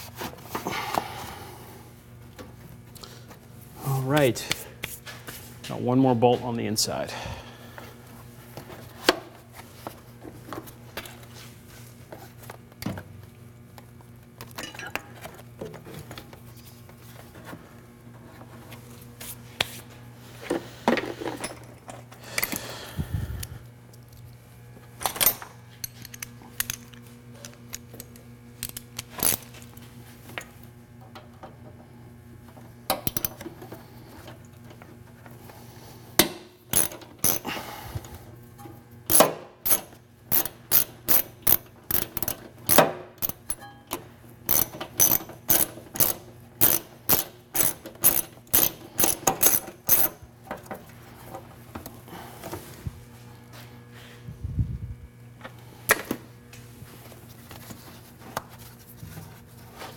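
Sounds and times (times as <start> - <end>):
ratchet wrench clicking: 36.7 - 37.4, 39.1 - 43.6, 44.5 - 50.2.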